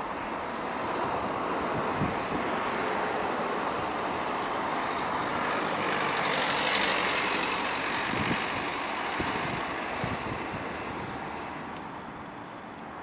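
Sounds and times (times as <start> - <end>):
jet engines at high power: 0.0 - 13.0.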